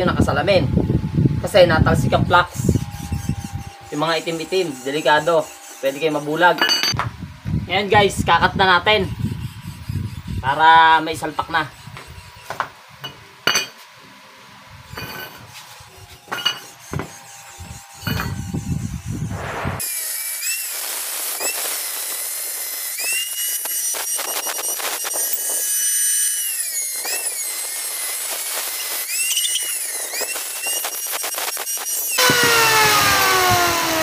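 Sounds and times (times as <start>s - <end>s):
angle grinder cutting steel: 1.4s - 7.0s, 8.4s - 13.7s, 14.9s - 34.0s.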